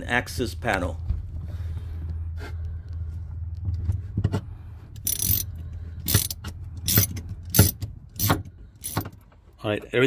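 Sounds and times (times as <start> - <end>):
wrench clicking: 5.0 - 9.2.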